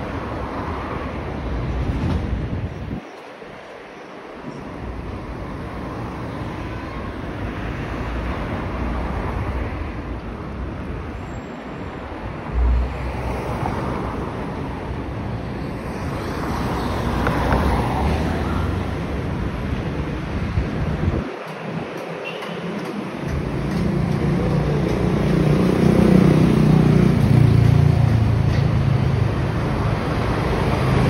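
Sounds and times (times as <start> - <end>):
road traffic: 0.0 - 31.0
wind buffeting microphone: 18.9 - 25.5.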